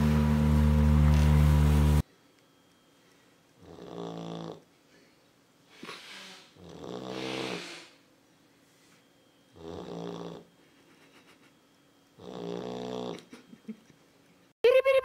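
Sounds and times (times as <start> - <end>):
dog snoring: 3.6 - 4.6, 6.2 - 7.9, 9.5 - 10.5, 12.2 - 13.2.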